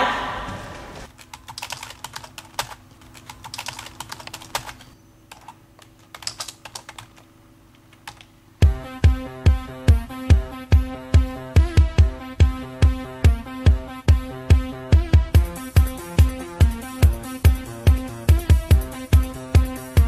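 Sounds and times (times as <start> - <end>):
faint steady hum: 0.0 - 14.1
keyboard typing: 1.1 - 8.3
electronic music with heavy beat: 8.6 - 20.0.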